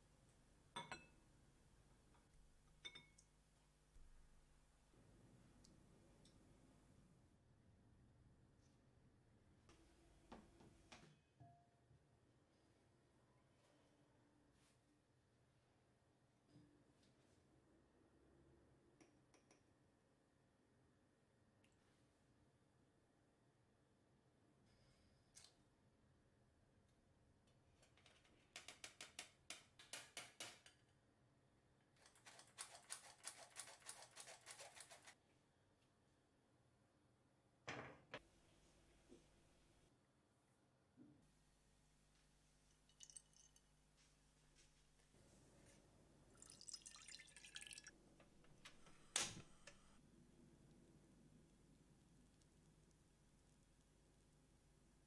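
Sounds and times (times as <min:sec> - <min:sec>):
liquid trickling and dripping: 0:42.7 - 0:43.7, 0:46.3 - 0:48.0.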